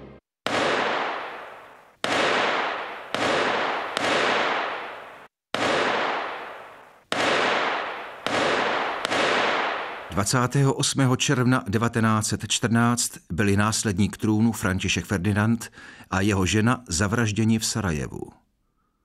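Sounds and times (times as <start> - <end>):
echoing gunshots: 0.4 - 10.4.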